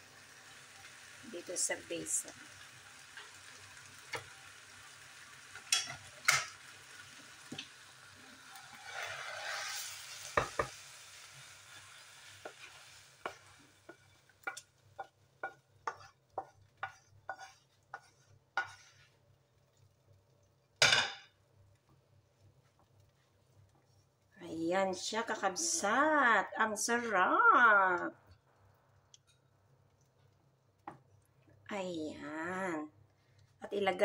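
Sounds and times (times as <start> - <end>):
sizzling pan: 0.0 - 34.0
spatula scraping sauce from pan: 8.5 - 10.7, 11.3 - 19.2
spatula tapping pan: 10.4 - 10.8, 12.3 - 19.1.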